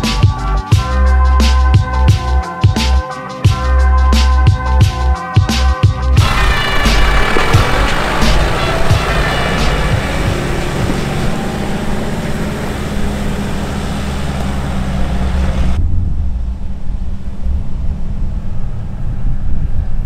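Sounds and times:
vehicle driving on gravel: 6.2s - 15.8s
steady low rumble: 6.2s - 20.0s.

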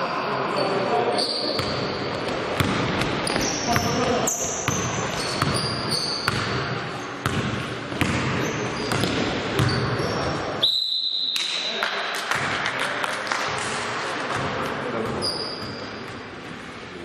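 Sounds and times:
players' voices: 0.0s - 7.2s, 11.5s - 17.0s
sneakers squeaking on floor: 0.5s - 11.6s, 14.4s - 16.4s
basketball bouncing: 1.6s - 4.1s, 4.7s - 6.6s, 7.2s - 10.4s.

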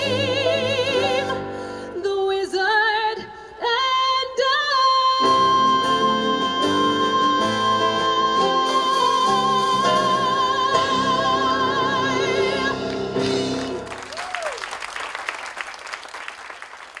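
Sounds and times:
audience applause: 13.3s - 17.0s.

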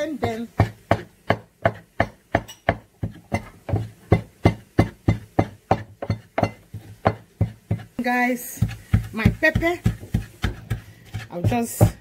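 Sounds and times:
wooden pestle pounding in mortar: 0.0s - 12.0s.

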